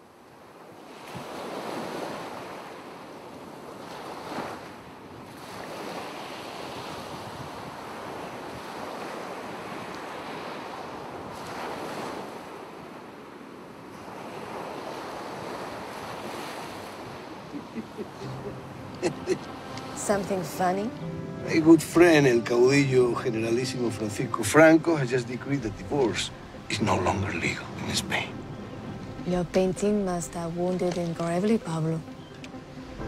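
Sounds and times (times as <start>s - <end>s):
sea waves on rocky shore: 0.0s - 21.0s.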